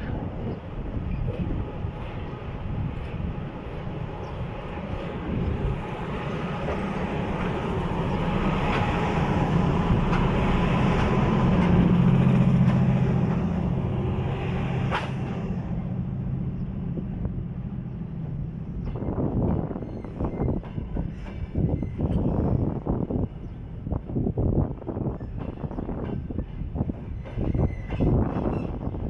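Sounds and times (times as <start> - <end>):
electric locomotive humming: 0.0 - 29.0
train wheels clicking: 4.7 - 15.6.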